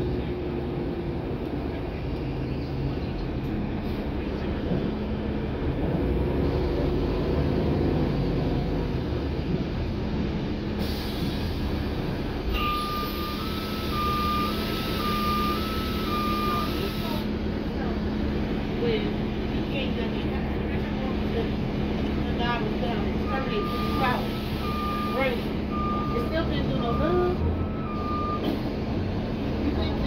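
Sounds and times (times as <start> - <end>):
bus engine and road rumble: 0.0 - 30.0
two-tone electronic beeper: 12.6 - 16.8.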